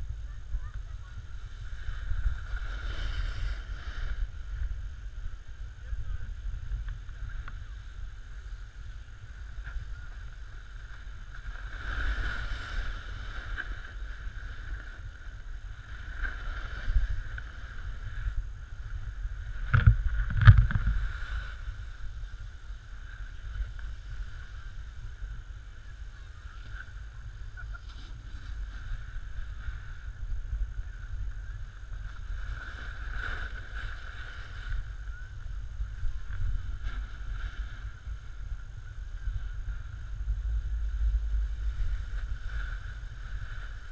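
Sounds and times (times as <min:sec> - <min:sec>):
wind rumble on microphone: 0:00.0 - 0:43.9
snowboard scraping over snow: 0:00.2 - 0:43.9.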